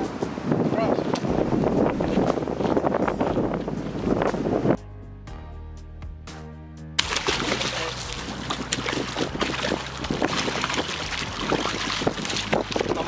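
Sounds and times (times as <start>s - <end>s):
background music: 1.3s - 13.0s
fish splashing in water: 7.0s - 13.0s.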